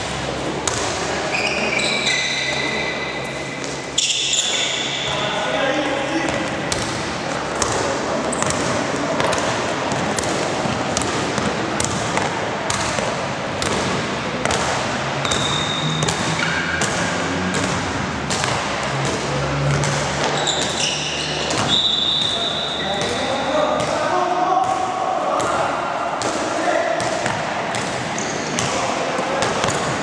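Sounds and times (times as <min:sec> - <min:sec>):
crowd and hall noise: 0:00.0 - 0:30.0
basketball dribbling: 0:00.1 - 0:01.5, 0:06.2 - 0:22.4
shoe squeaks: 0:01.2 - 0:05.3, 0:15.2 - 0:16.9, 0:20.1 - 0:23.8, 0:28.1 - 0:28.8.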